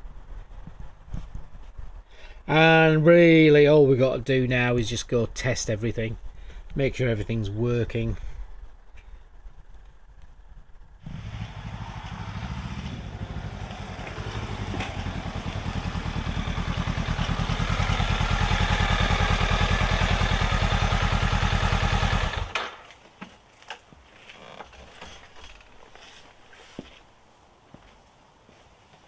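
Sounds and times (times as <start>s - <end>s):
motorcycle engine running: 11.0s - 22.6s.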